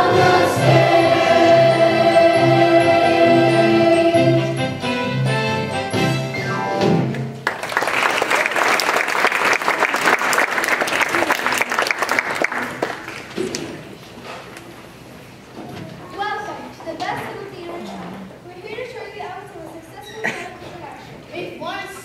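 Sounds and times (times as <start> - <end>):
choir singing with accompaniment: 0.0 - 5.7
audience applauding: 7.1 - 13.4.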